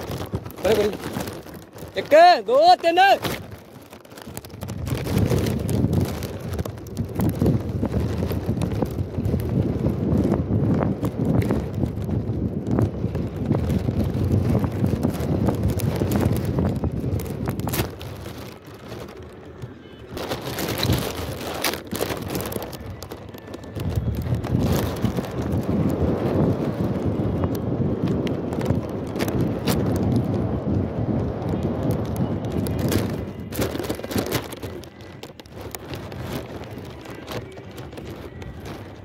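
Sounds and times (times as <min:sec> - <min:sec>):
kite rattling clicks: 0:00.0 - 0:39.0
wind buffeting microphone: 0:00.0 - 0:39.0.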